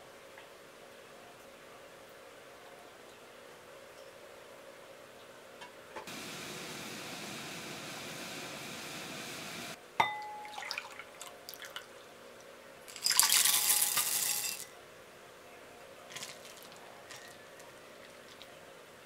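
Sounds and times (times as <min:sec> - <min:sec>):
light glass clinks: 0:10.0 - 0:10.7
chocolate pieces clattering and splashing: 0:12.9 - 0:14.7, 0:16.1 - 0:17.5
cream pouring into glass bowl: 0:12.9 - 0:14.7.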